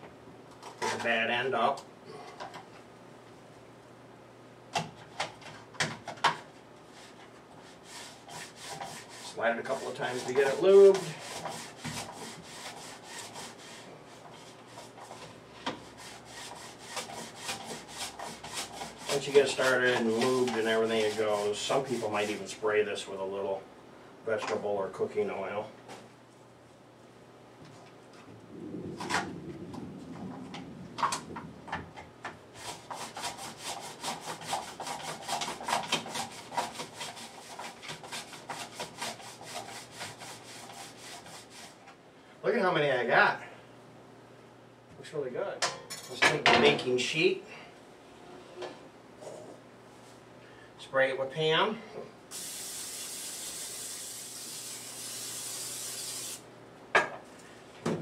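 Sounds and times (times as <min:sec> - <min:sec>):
potato rasping on mandoline slicer: 0:32.6 - 0:41.8.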